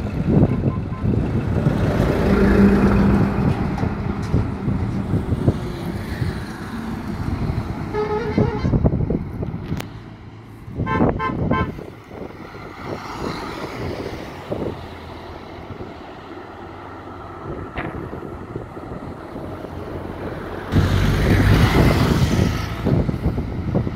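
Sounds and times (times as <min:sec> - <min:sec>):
passing traffic rumble: 0:00.0 - 0:23.9
vehicle horns honking: 0:00.4 - 0:01.2, 0:07.9 - 0:08.9, 0:10.8 - 0:11.8.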